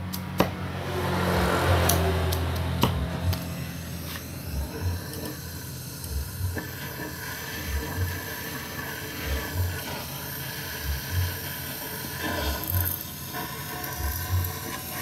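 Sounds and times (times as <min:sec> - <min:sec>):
welding torch flame hissing: 0:00.0 - 0:15.0
low double pulse: 0:00.6 - 0:05.0.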